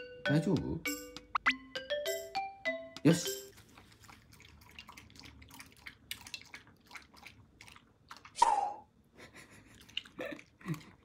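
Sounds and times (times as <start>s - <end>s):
dog lapping water: 3.5s - 8.4s, 9.6s - 11.0s.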